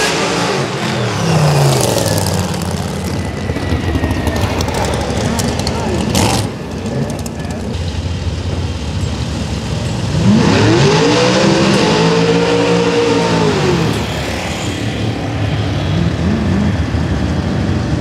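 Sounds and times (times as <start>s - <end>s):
drag car engine revving: 0.0s - 7.8s, 8.4s - 18.0s
tire spin noise: 0.6s - 18.0s.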